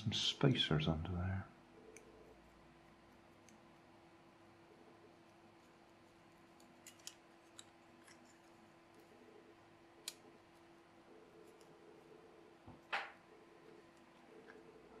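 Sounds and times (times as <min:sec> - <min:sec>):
small metal and plastic clicks: 0:06.6 - 0:08.4.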